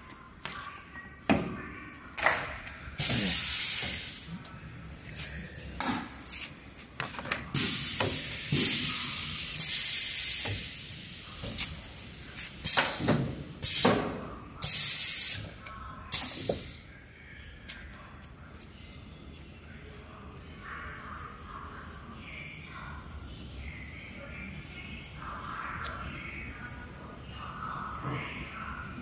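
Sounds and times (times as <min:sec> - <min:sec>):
compressed air hissing: 0:03.0 - 0:04.4, 0:07.6 - 0:13.9, 0:14.6 - 0:15.5, 0:16.1 - 0:16.9.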